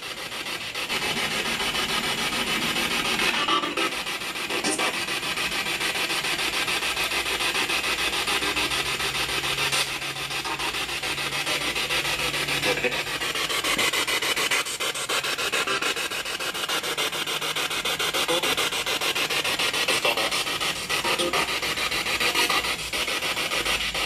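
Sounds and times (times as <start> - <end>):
choppy radio static: 0.0 - 23.2
snatches of radio sound: 3.1 - 5.2, 11.5 - 13.2, 19.8 - 21.5.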